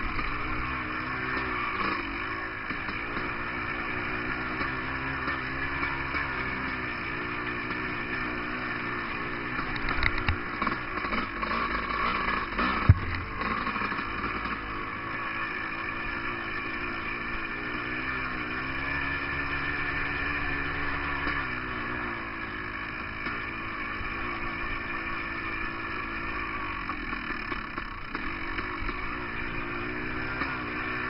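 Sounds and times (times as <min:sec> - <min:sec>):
dirt bike engine: 0:00.0 - 0:31.0
sharp knock: 0:12.8 - 0:13.4.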